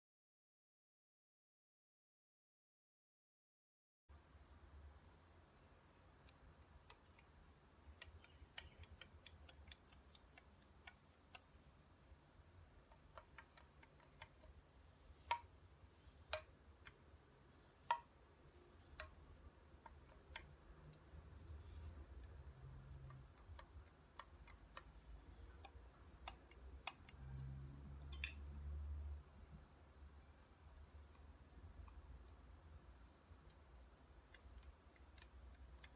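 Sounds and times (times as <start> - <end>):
faint metallic clicks and taps: 6.2 - 11.6, 17.8 - 28.6.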